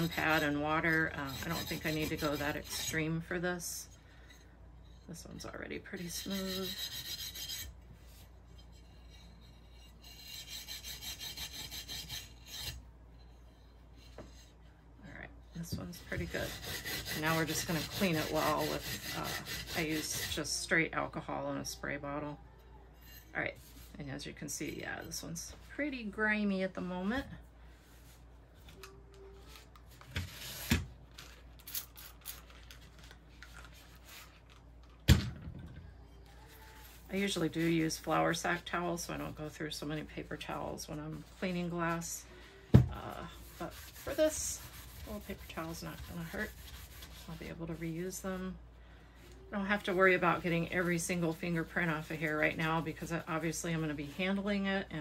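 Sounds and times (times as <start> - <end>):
scrubbing pad rasping on glass: 0.0 - 3.0, 16.0 - 20.4, 43.3 - 47.9
paper towel rubbing on glass: 43.0 - 48.2.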